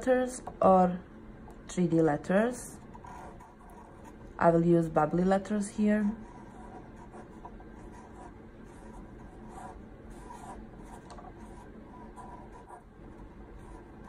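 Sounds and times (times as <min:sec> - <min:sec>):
marker pen scratching on paper: 0:02.9 - 0:04.2, 0:06.1 - 0:14.0.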